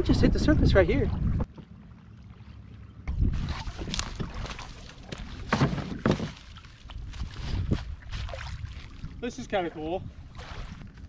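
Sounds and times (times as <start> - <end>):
wind rumble on microphone: 0.0 - 1.6, 3.0 - 11.0
kayak hull scraping ground: 3.2 - 8.9.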